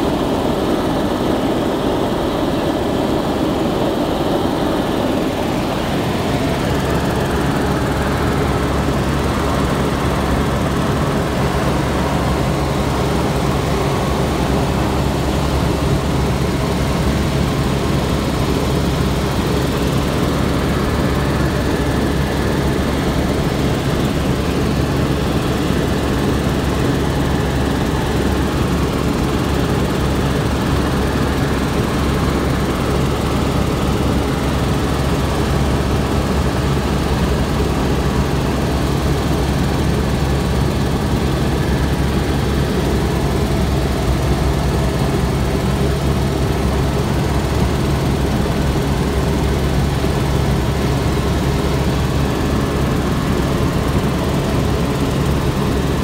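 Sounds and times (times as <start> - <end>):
light aircraft engine drone: 0.0 - 56.0.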